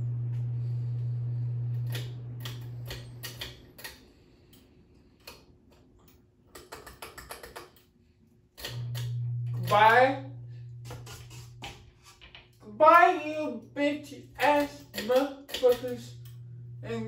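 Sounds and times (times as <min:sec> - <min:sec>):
low electrical hum: 0:00.0 - 0:17.0
pull-chain switch clicking: 0:01.9 - 0:04.0, 0:14.4 - 0:16.4.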